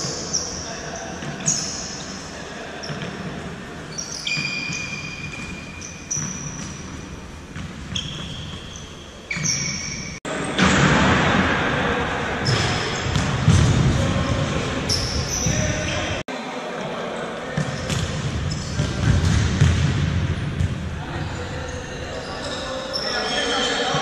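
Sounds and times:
sneaker squeaks on court: 0.0s - 10.8s, 12.4s - 13.7s, 14.9s - 16.2s, 17.6s - 19.8s, 20.6s - 24.0s.

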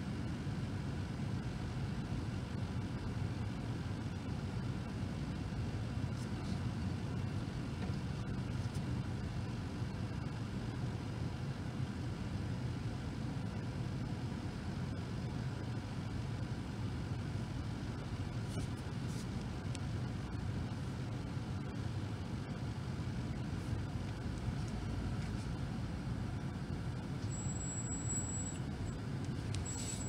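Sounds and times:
car engine idling: 14.1s - 30.0s.

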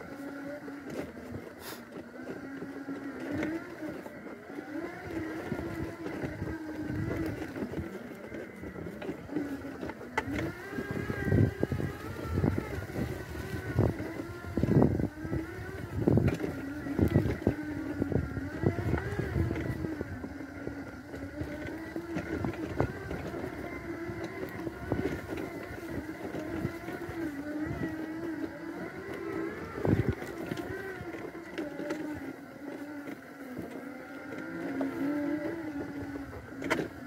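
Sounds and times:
electric wheelchair motors humming: 0.0s - 37.0s.

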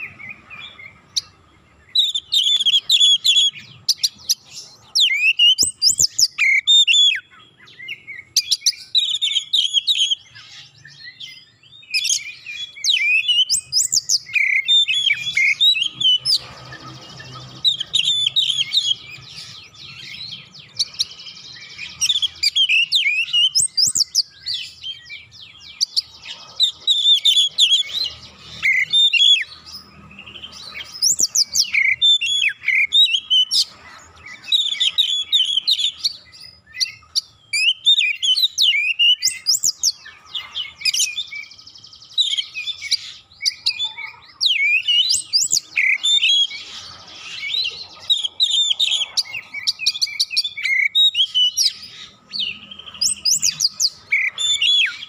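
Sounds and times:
bird song of fast whistles: 1.9s - 11.2s, 11.9s - 25.1s, 34.4s - 40.1s, 44.5s - 55.0s.

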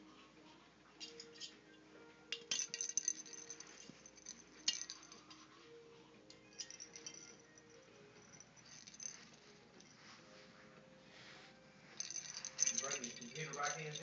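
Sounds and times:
plastic balls rattling: 2.4s - 5.4s, 12.0s - 14.0s.

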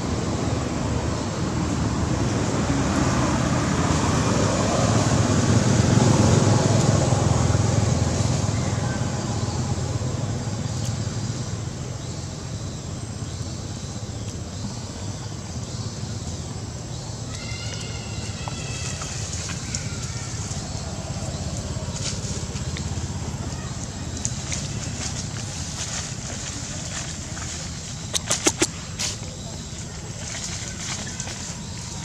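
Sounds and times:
motor vehicle passing: 1.8s - 12.2s.

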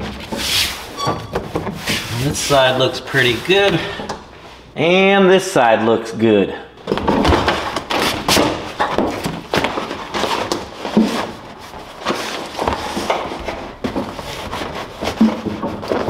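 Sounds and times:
floor mat rustling and scraping: 0.0s - 4.6s, 6.9s - 16.0s
bumps and knocks: 1.0s - 2.0s, 6.8s - 11.3s.

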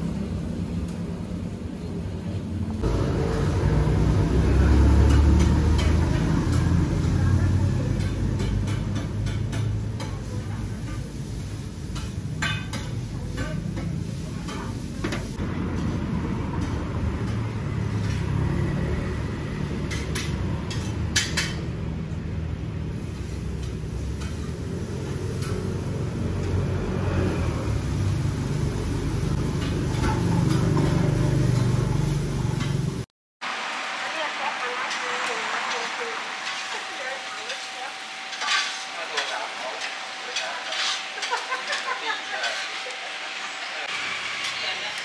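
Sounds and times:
street traffic rumble: 0.0s - 33.1s.

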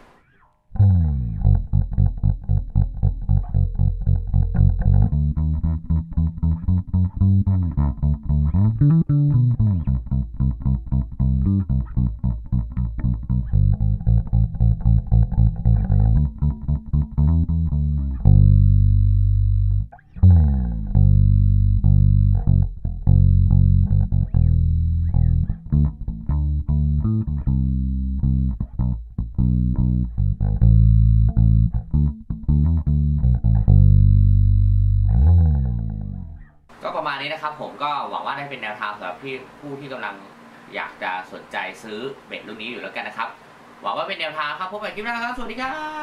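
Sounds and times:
electric bass played fingerstyle: 0.2s - 36.8s.

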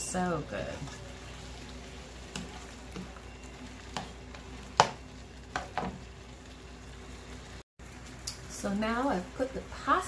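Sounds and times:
faint sizzle: 0.0s - 10.0s.

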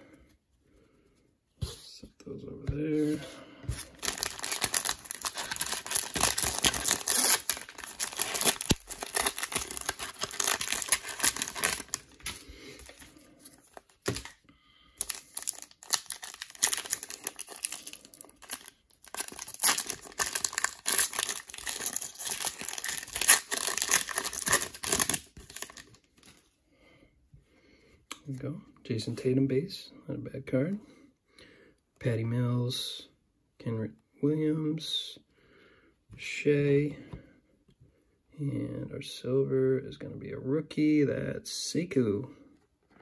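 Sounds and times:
plastic wrapper crinkling: 3.8s - 14.4s, 15.0s - 26.4s.

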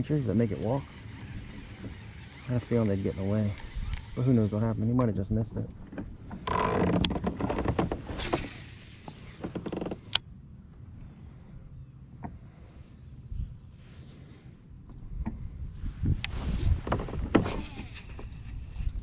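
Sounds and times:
high-pitched insect drone: 0.0s - 13.6s.

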